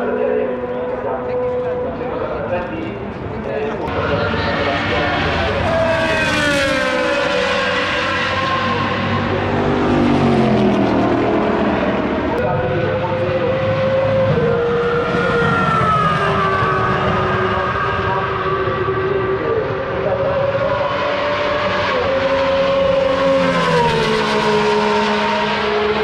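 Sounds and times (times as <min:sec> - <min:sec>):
racing car engine at high revs: 0:03.8 - 0:26.0.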